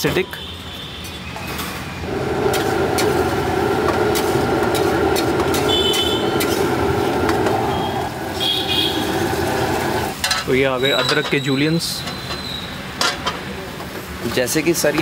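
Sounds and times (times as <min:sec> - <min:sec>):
gravy sizzling and bubbling: 0:02.0 - 0:10.3
spatula scraping metal pan: 0:02.4 - 0:10.2.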